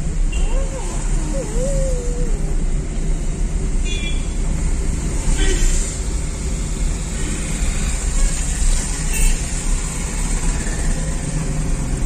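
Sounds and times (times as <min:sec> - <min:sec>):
tyres hissing on wet road: 0:04.6 - 0:12.0.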